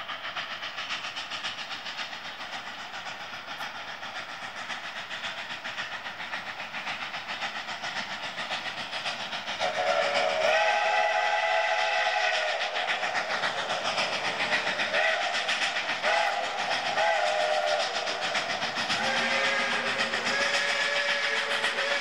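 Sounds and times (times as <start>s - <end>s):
steam locomotive exhaust chuffing: 0.0s - 22.0s
chime steam whistle blasts: 9.6s - 13.0s, 16.0s - 18.4s, 19.0s - 22.0s.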